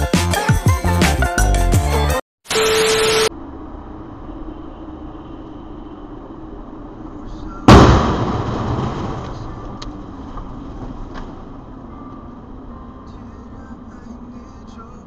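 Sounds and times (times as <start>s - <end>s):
road noise inside a car: 3.3s - 15.0s
loud bang of vehicle collision: 7.6s - 9.8s.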